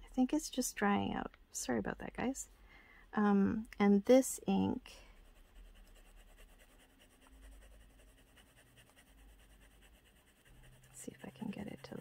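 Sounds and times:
pen nib scratching on paper: 4.9s - 12.0s.

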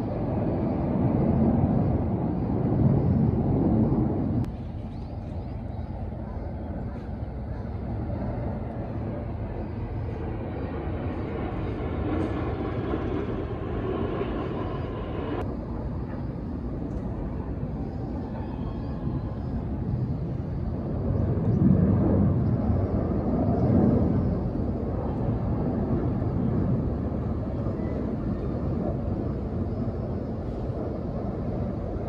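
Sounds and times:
faint jet whine: 0.0s - 32.0s
jet engines rumbling overhead: 0.0s - 32.0s.

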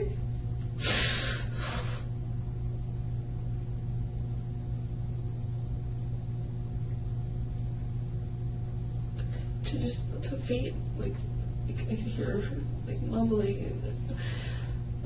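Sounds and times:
low electrical hum: 0.0s - 15.0s
woman sniffling: 0.8s - 2.1s.

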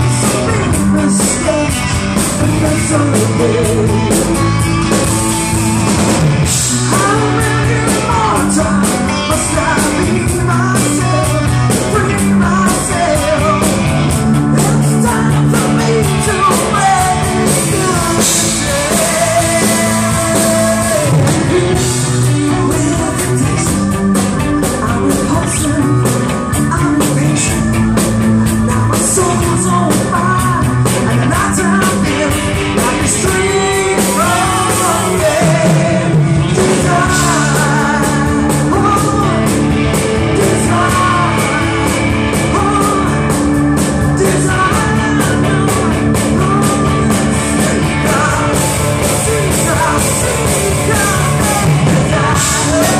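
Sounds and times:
live rock band: 0.0s - 52.9s
woman singing: 6.8s - 13.8s, 14.5s - 23.8s, 29.0s - 39.6s, 40.3s - 43.3s, 44.1s - 52.9s.

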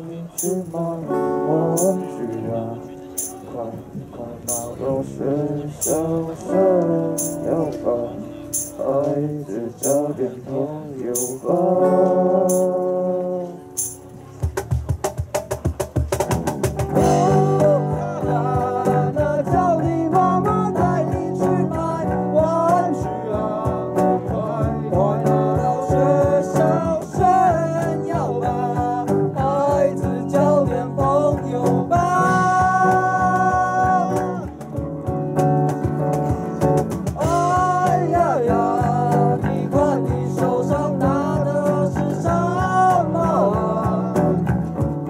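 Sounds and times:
strummed acoustic guitars: 0.0s - 45.0s
cajon drumming: 0.2s - 10.2s, 11.1s - 45.0s
electric bass: 16.3s - 45.0s
person singing: 17.0s - 34.6s, 36.4s - 44.5s.

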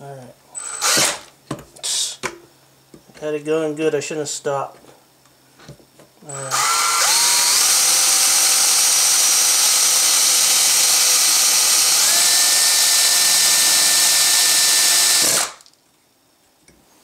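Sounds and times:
cordless drill whining: 0.6s - 1.3s, 6.3s - 15.6s.

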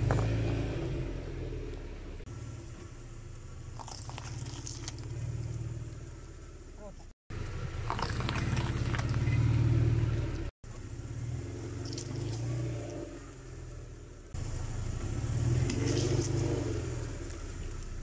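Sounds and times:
objects crunching under tyres: 0.0s - 1.0s, 2.7s - 6.5s, 7.7s - 10.5s, 11.5s - 13.8s, 14.4s - 18.0s
car engine running: 0.0s - 18.0s.

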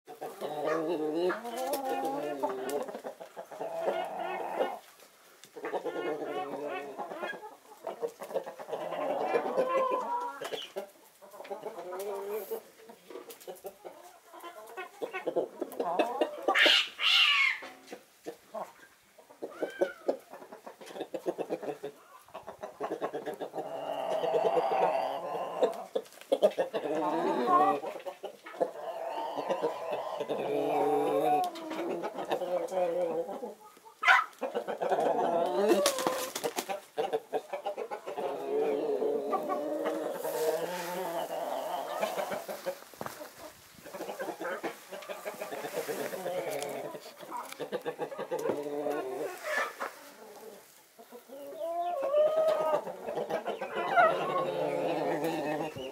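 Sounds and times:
hens clucking: 0.1s - 55.9s
hen rising and falling call: 16.5s - 17.7s.

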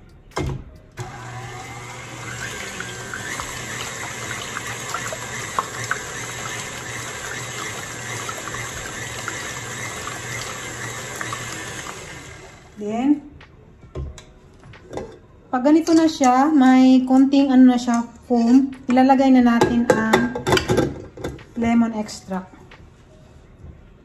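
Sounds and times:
stand mixer whisking egg whites: 1.0s - 12.8s.

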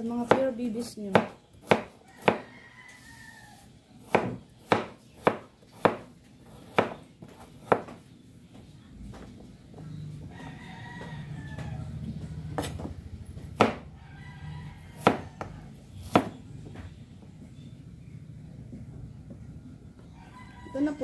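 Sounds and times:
knife chopping on cutting board: 0.2s - 2.5s, 4.0s - 8.0s, 13.5s - 13.8s, 15.0s - 16.4s.

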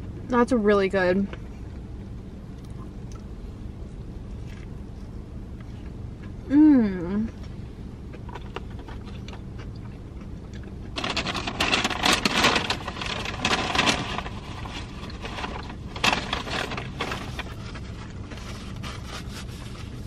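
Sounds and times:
steady low hum: 0.0s - 20.0s
paper napkin rustling: 11.0s - 20.0s.

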